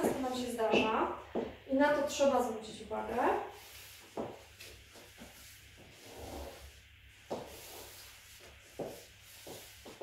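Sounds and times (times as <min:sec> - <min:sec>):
dance shoe footsteps on wood: 0:00.0 - 0:01.6, 0:04.2 - 0:04.4
shoe scuffing on floor: 0:00.0 - 0:01.6, 0:03.4 - 0:10.0.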